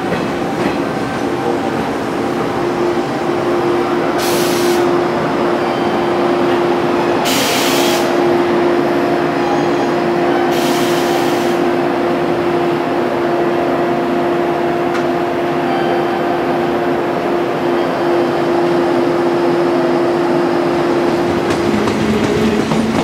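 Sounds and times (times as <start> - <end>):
electric train humming: 0.0 - 23.0
short hisses of air: 4.2 - 4.9.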